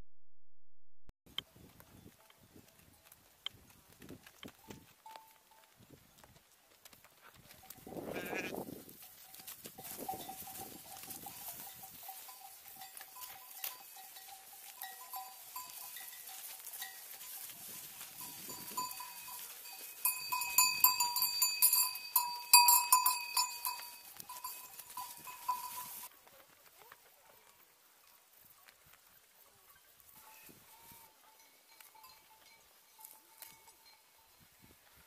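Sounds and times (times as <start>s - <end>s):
hooves on dry trail: 1.3s - 35.0s
sheep bells ringing: 4.4s - 5.8s, 7.5s - 26.1s, 27.9s - 35.0s
sheep bleating: 8.0s - 8.6s.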